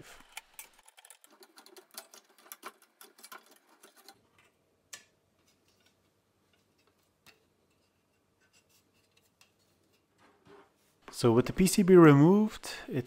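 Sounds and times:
small clicks and knocks: 0:00.2 - 0:10.5.

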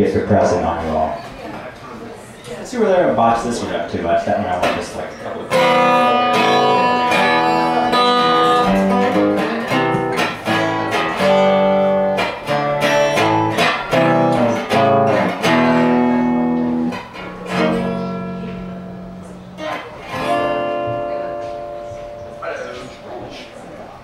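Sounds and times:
guitar strumming chords: 0:04.5 - 0:23.3.

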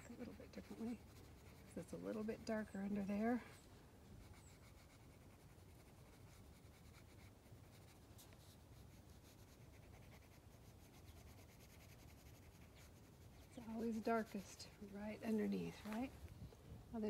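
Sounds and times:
pencil scratching on paper: 0:00.0 - 0:03.4, 0:04.2 - 0:16.1.

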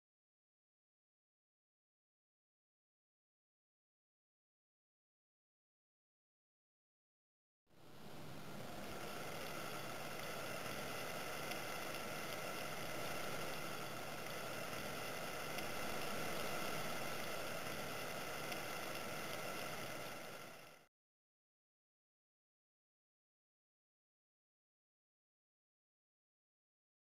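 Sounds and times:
water boiling with bubbling hiss: 0:07.8 - 0:20.9.

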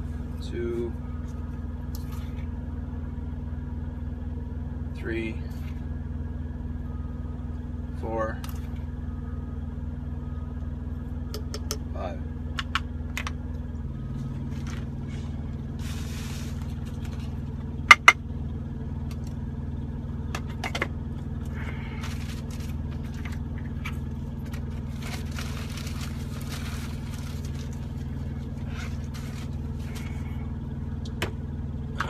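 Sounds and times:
truck engine idling: 0:00.0 - 0:32.0
plastic bag rustling: 0:24.4 - 0:30.2.

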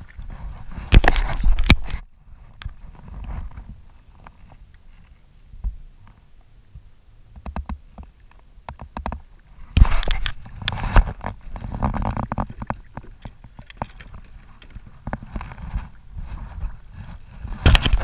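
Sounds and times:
fish splashing and thrashing: 0:00.0 - 0:02.0, 0:07.7 - 0:18.0.

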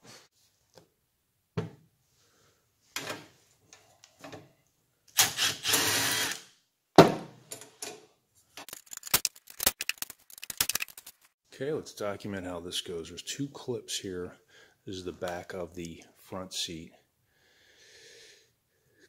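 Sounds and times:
cordless drill running: 0:05.2 - 0:06.4
quick clicks and rattles: 0:08.6 - 0:11.4.

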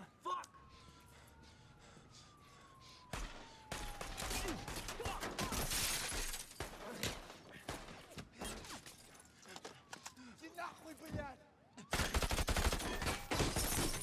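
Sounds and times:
glass shattering: 0:05.6 - 0:06.6.

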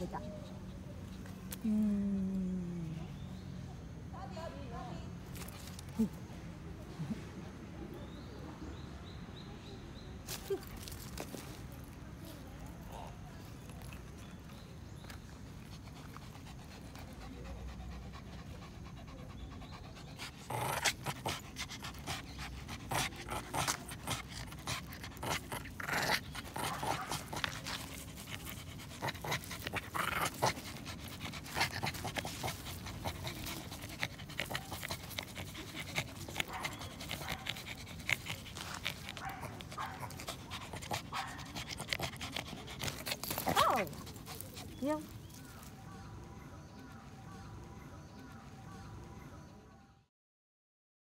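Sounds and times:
dog panting hard: 0:15.4 - 0:45.4.

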